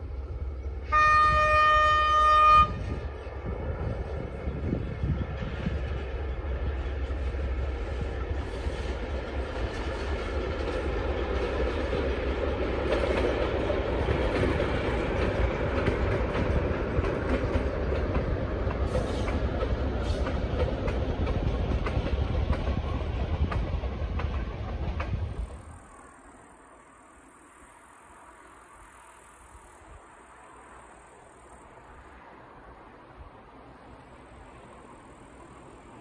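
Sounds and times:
train wheels clicking over rail joints: 4.8 - 25.8.

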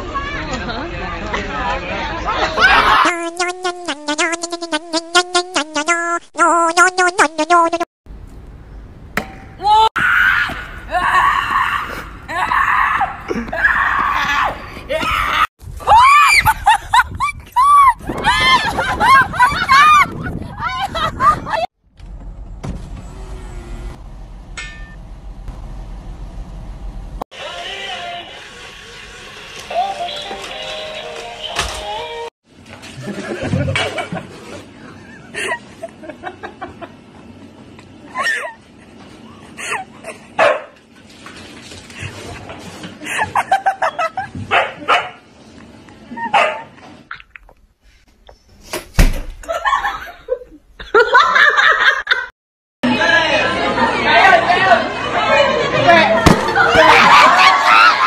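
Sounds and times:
short high-pitched sound: 3.0 - 7.8
vehicle engine rumble: 21.8 - 27.2.

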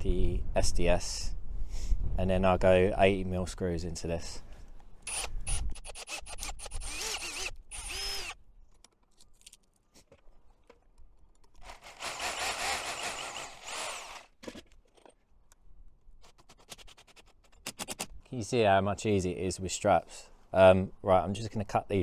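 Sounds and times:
cordless drill drilling metal: 5.0 - 8.4, 11.6 - 14.4
hammer drill boring into masonry: 5.1 - 8.4, 11.6 - 14.3.

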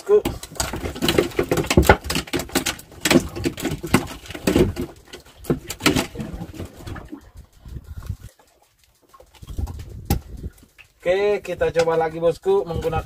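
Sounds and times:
fish knocking on wooden deck: 0.3 - 7.1.

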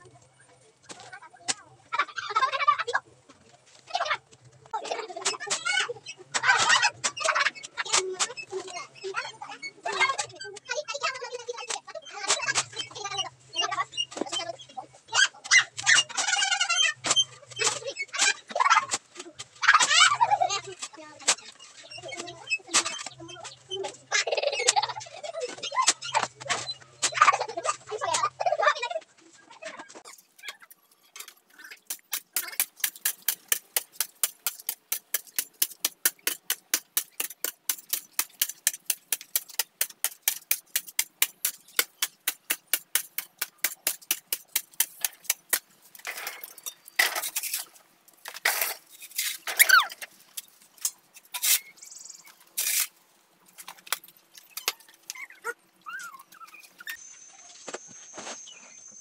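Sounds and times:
scrapes and knocks: 29.9 - 51.8
hoe chopping hard soil: 31.7 - 47.4.

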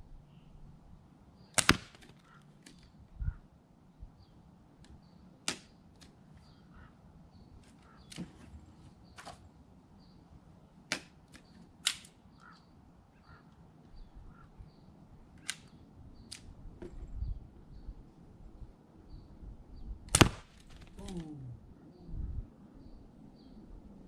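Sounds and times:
pellet pistol pops: 1.5 - 2.8, 5.5 - 6.1, 10.9 - 12.2, 15.4 - 17.0, 20.1 - 21.0.

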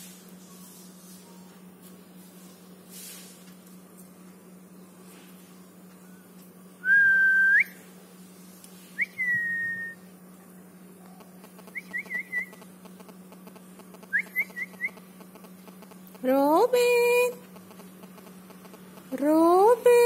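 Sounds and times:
person whistling: 6.8 - 7.8, 9.0 - 10.0.

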